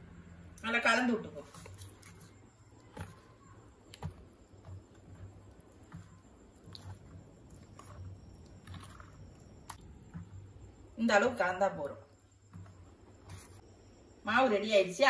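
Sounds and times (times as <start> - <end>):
ladle stirring thick batter: 0.9 - 14.1.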